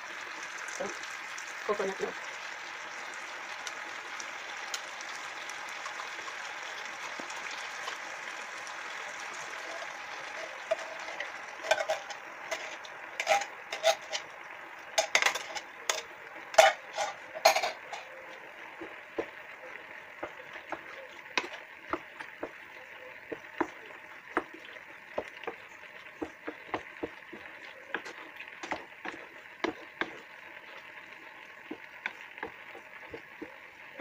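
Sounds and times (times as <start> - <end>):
food frying in a pan: 0.0 - 34.0
metal clinks on frying pan: 15.0 - 18.1.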